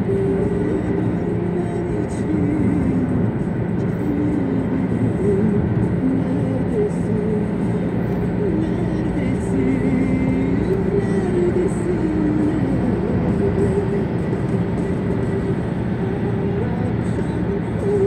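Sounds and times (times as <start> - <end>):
car road and engine noise: 0.0 - 18.0.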